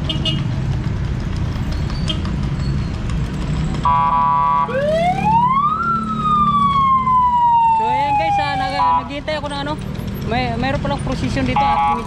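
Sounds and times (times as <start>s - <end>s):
low traffic rumble: 0.0s - 12.0s
vehicle siren wailing: 3.8s - 9.1s, 11.5s - 12.0s.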